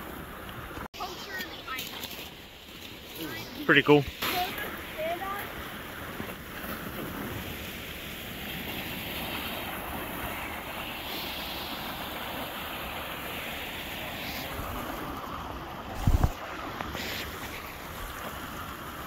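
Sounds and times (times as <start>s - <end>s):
mountain stream and waterfall rushing: 7.0s - 19.0s.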